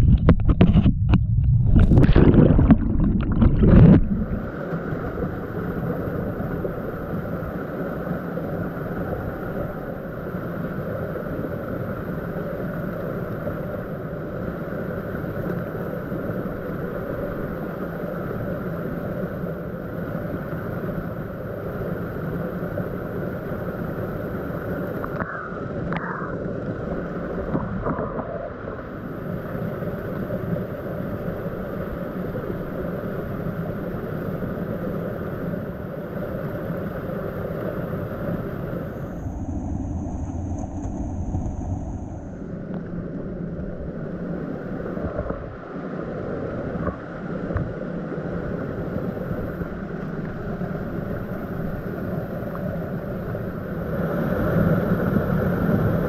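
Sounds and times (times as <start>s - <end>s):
water rushing over rocks: 0.0s - 19.2s.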